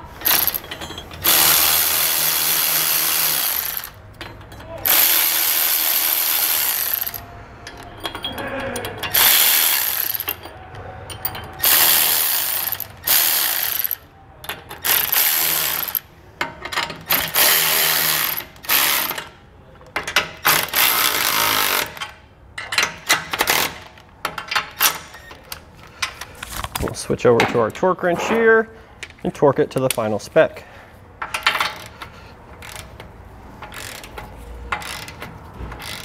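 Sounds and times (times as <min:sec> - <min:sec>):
electric ratchet running: 0:00.2 - 0:00.6, 0:01.2 - 0:04.0, 0:04.8 - 0:07.2, 0:09.1 - 0:10.4, 0:11.6 - 0:14.0, 0:14.8 - 0:16.0, 0:17.1 - 0:19.2, 0:35.8 - 0:36.0.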